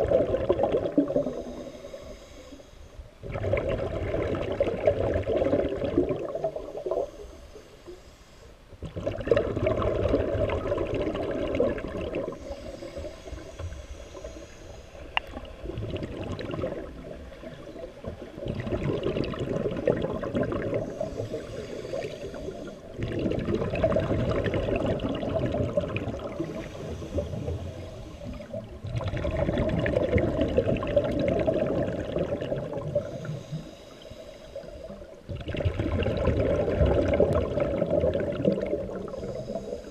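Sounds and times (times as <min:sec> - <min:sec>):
bubbling exhale underwater: 0:00.0 - 0:02.2, 0:03.2 - 0:07.2, 0:08.8 - 0:14.6, 0:15.2 - 0:33.8, 0:34.8 - 0:39.9
regulator hissing inhale: 0:01.3 - 0:03.2, 0:07.0 - 0:08.7, 0:12.3 - 0:15.6, 0:20.8 - 0:23.0, 0:26.4 - 0:28.8, 0:33.0 - 0:35.3, 0:39.0 - 0:39.9.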